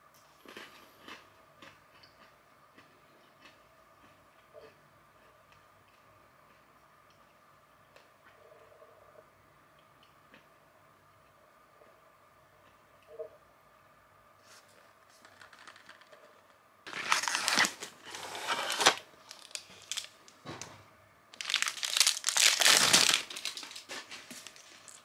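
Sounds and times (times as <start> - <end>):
foil wrapper crinkling: 15.1 - 20.3, 21.4 - 25.0.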